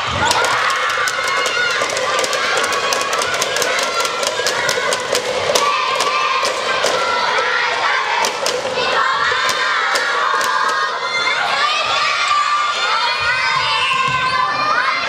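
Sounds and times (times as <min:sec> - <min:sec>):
sharp percussive beats: 0:00.0 - 0:11.3
young voices shouting and chanting: 0:00.0 - 0:15.0.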